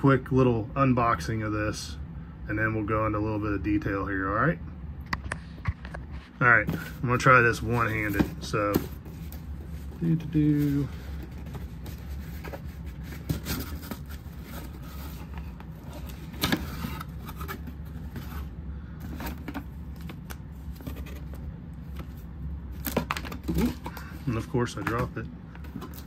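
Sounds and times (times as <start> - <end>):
cardboard flaps scraping: 6.1 - 22.2
packaging clicks and rustles: 6.6 - 26.0.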